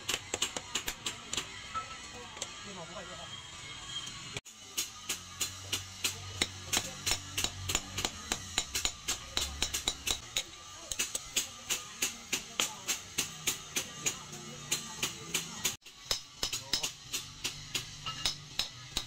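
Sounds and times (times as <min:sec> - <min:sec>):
hammer striking steel drift: 0:04.6 - 0:19.0.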